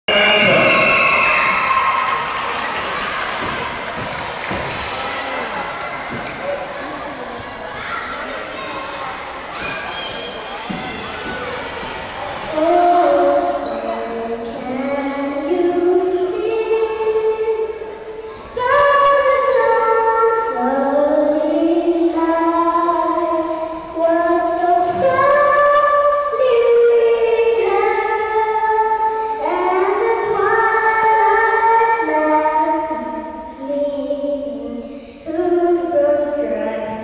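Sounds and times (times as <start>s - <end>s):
girl singing unaccompanied: 12.4s - 37.0s.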